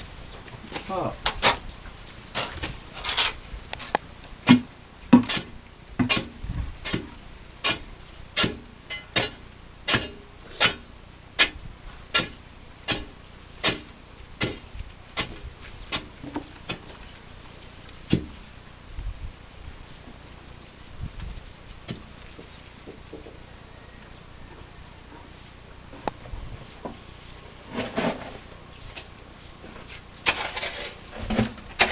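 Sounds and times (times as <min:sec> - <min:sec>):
steel bar striking rock: 0:04.5 - 0:14.6.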